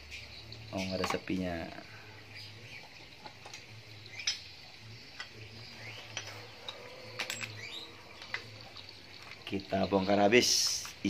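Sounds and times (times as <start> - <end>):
metallic clicks of tools and parts: 6.1 - 8.4.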